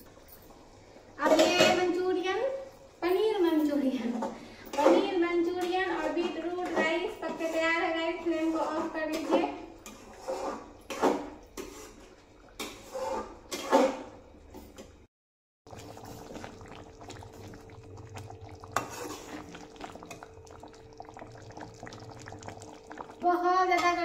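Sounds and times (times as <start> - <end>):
thick gravy bubbling: 9.7 - 13.7, 15.7 - 24.0.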